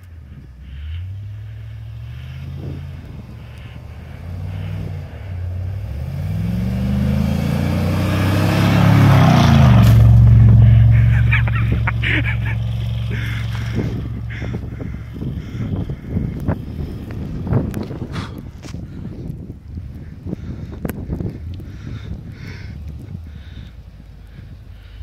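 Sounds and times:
truck engine revving: 0:00.8 - 0:18.4.

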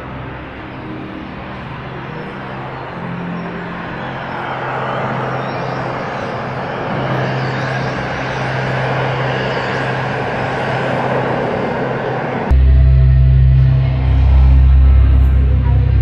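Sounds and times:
rushing wind-like noise: 0:00.0 - 0:12.6
low electronic drone: 0:00.0 - 0:16.0.

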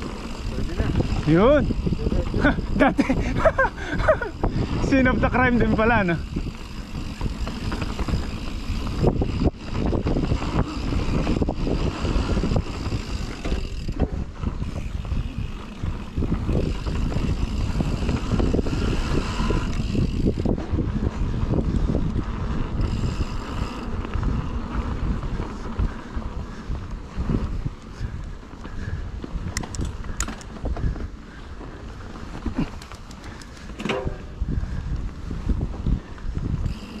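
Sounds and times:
tyres rumbling on dirt: 0:00.0 - 0:26.4
wind buffeting microphone: 0:00.0 - 0:37.0
bike knocks and rattles: 0:06.2 - 0:24.3, 0:28.7 - 0:34.9.

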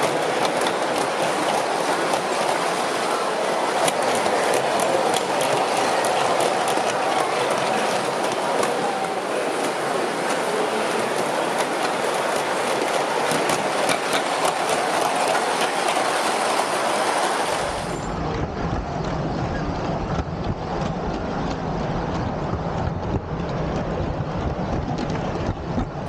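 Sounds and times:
model train rumble and rattle: 0:00.0 - 0:26.0
model train wheels rattling: 0:03.6 - 0:17.4.

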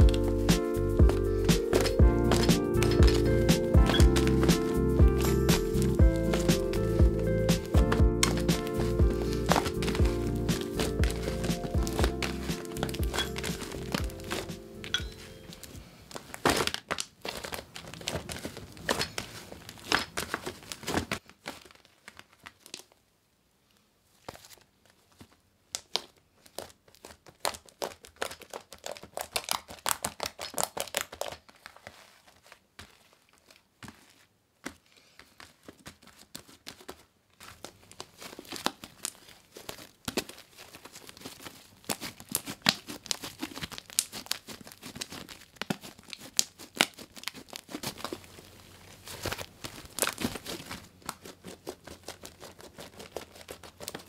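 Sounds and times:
slime squeezed by hand crackling: 0:25.8 - 0:34.1, 0:37.5 - 0:54.0.

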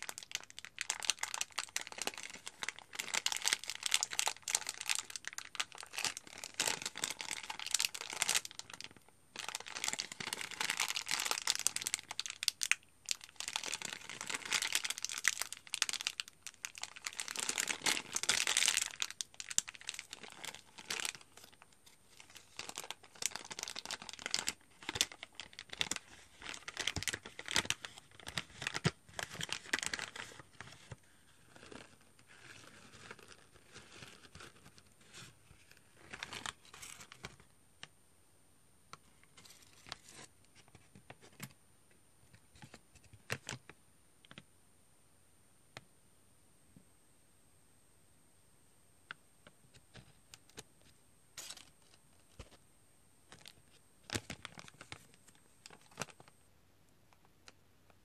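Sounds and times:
packet wrapping crinkling: 0:00.0 - 0:37.5, 0:49.8 - 0:52.6, 0:53.2 - 0:56.4.

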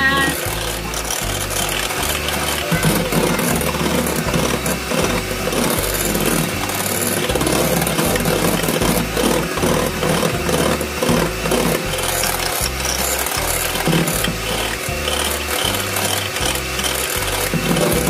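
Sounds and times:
electric hand mixer whisking: 0:00.0 - 0:18.0.

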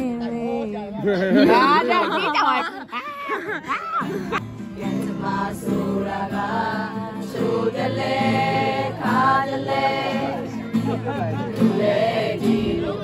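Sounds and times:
acoustic guitar: 0:03.1 - 0:13.0
group of voices singing: 0:04.7 - 0:13.0.

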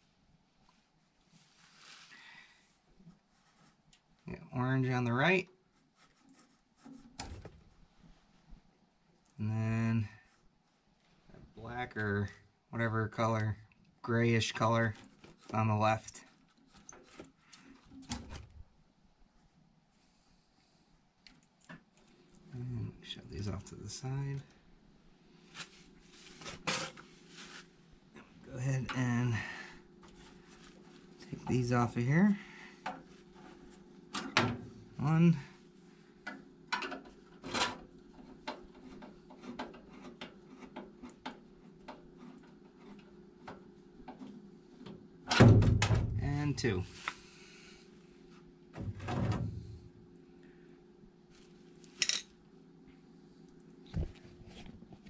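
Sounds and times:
faint steady hum: 0:00.0 - 0:55.0
faint knocks and clicks on wires: 0:36.2 - 0:45.0.

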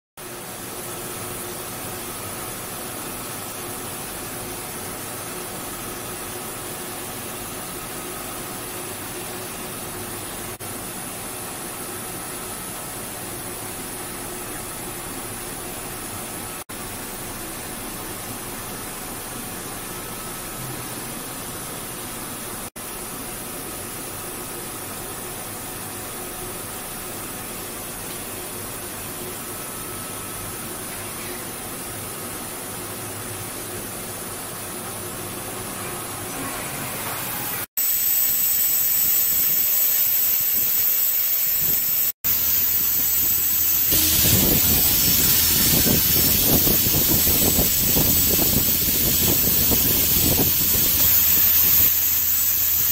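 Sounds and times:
milling machine hiss: 0:35.6 - 0:52.9.

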